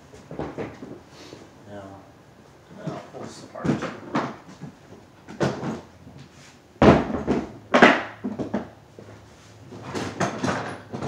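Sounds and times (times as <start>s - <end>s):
plastic cases knocking and clunking: 0.2s - 1.0s, 2.8s - 5.9s, 6.8s - 8.8s, 9.7s - 11.0s.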